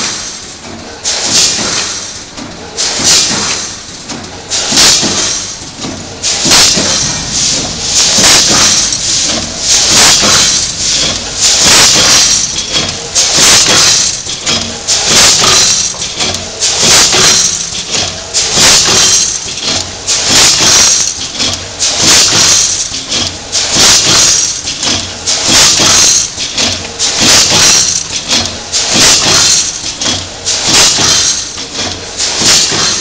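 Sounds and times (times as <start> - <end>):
packing machine hissing and clattering: 0.0 - 33.0.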